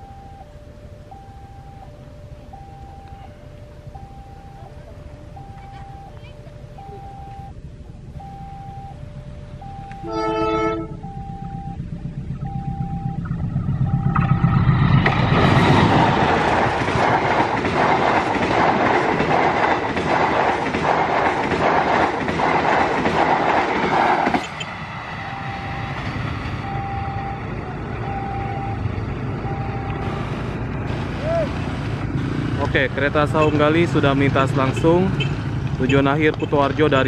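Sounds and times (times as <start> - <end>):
level-crossing bell beeping: 0.0 - 14.8, 25.2 - 30.2
train rumbling past: 0.0 - 37.0
train wheels clattering on rails: 14.8 - 26.6.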